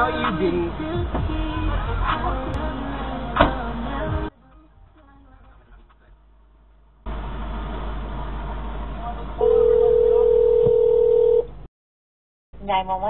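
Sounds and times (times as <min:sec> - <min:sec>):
telephone ringback tone: 0:09.4 - 0:11.5.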